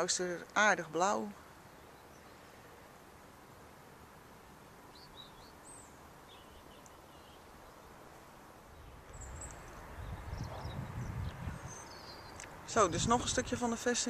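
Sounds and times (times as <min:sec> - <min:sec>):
small birds chirping: 0:00.0 - 0:03.0, 0:04.8 - 0:14.0
outdoor hiss: 0:00.0 - 0:14.0
low rumble on microphone: 0:08.7 - 0:13.6.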